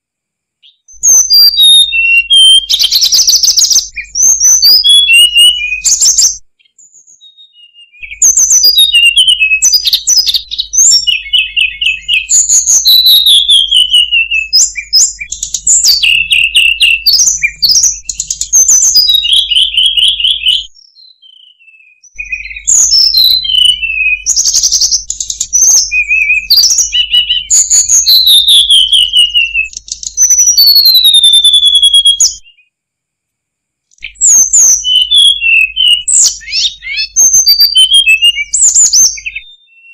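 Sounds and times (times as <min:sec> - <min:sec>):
bird whistling song: 0:00.6 - 0:32.7, 0:33.9 - 0:39.9.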